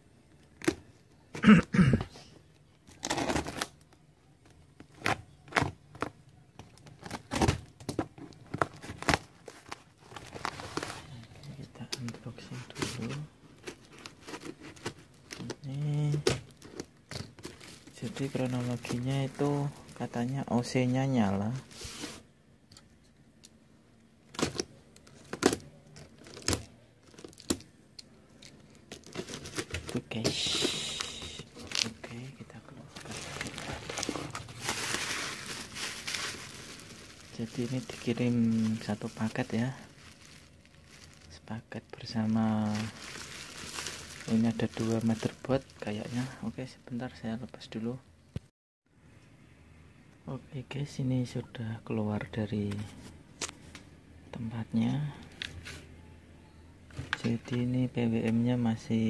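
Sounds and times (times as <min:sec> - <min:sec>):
plastic wrap crinkling: 0:04.8 - 0:22.2, 0:24.3 - 0:27.8, 0:28.4 - 0:46.5.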